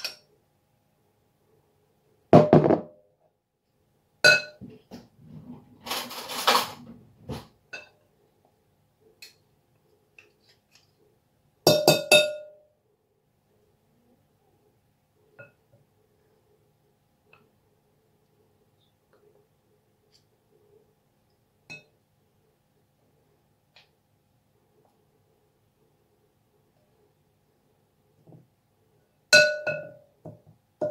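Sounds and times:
metal spoons clinking on glass bowl: 4.3s - 4.6s, 11.7s - 12.6s, 29.4s - 30.0s.

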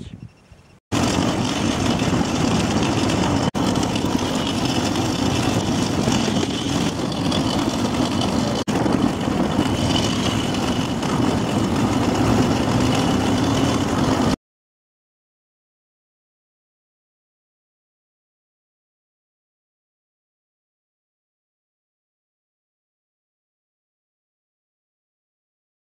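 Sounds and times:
motorcycle engine running: 1.0s - 14.4s.

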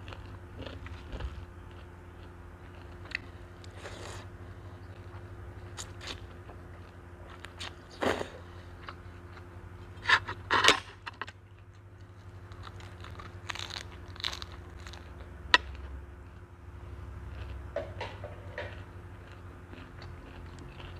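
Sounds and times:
chewing: 0.0s - 9.5s, 11.5s - 16.5s, 17.2s - 20.9s
wet crunching bites: 12.5s - 15.9s.

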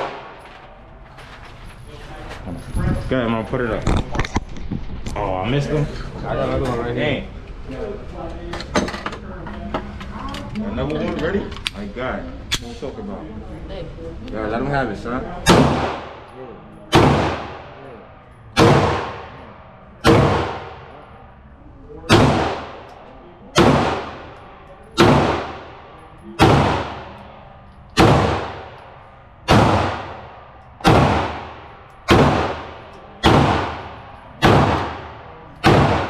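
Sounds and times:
pistol shots echoing indoors: 0.0s - 0.7s, 15.4s - 16.3s, 16.9s - 21.0s, 22.1s - 36.0s.

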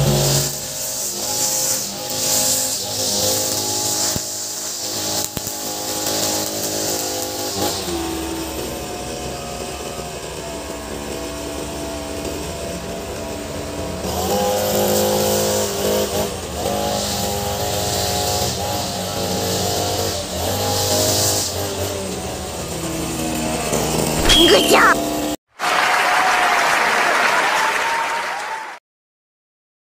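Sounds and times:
brush cutter engine revving: 0.0s - 25.0s.

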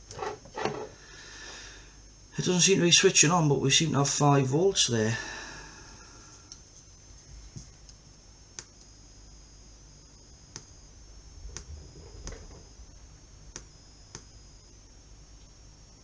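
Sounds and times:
faint high-pitched electronic whine: 0.0s - 16.0s.

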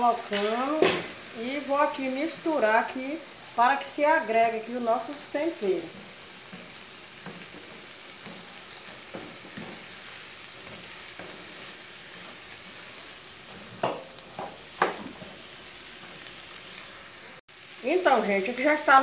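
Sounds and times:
beans sizzling in a frying pan: 0.0s - 19.0s
spatula scraping a pan: 5.0s - 17.4s
spatula knocking against pan: 13.8s - 15.1s.

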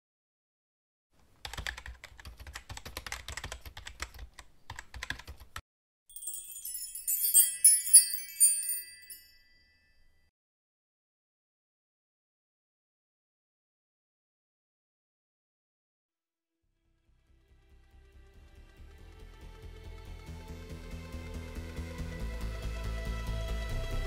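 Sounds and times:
keyboard typing clicks: 1.4s - 5.6s
high twinkling chime jingle: 6.1s - 10.0s.

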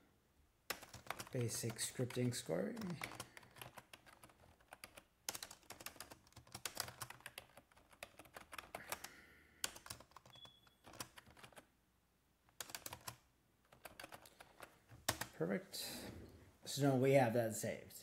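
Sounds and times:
computer keyboard typing: 0.7s - 11.7s, 12.5s - 15.4s.

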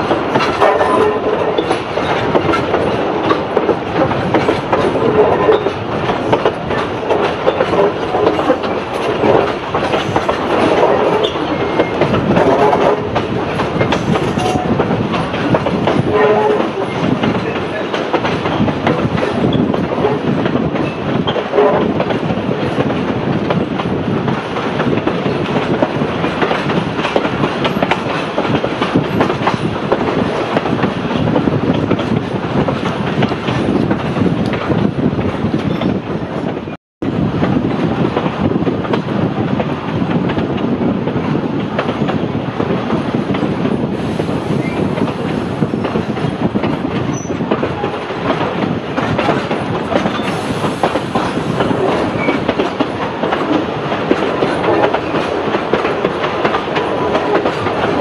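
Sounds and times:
train wheels clattering over rail joints: 0.0s - 58.0s.

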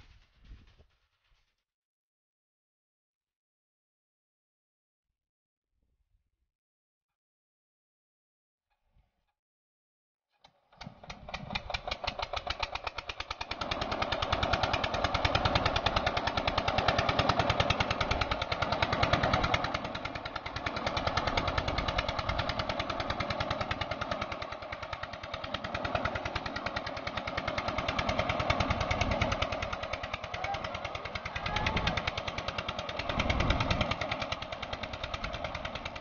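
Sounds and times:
diesel water pump engine knocking: 10.8s - 36.0s.

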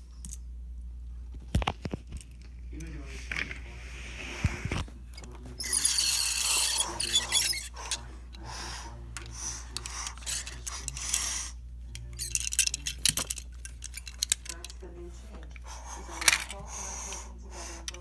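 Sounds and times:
plastic clicks and clatter: 12.0s - 14.8s.

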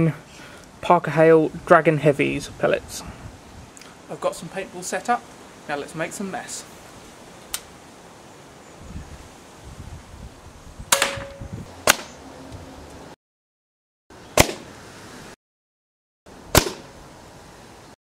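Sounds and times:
air rifle shots: 10.9s - 12.1s, 14.4s - 14.7s, 16.5s - 16.9s.

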